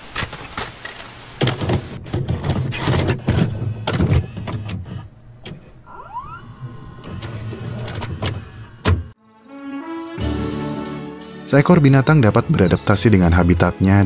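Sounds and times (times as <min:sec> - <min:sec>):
tape mechanism clicks and clunks: 0:00.1 - 0:09.2
motor hum: 0:03.2 - 0:09.2.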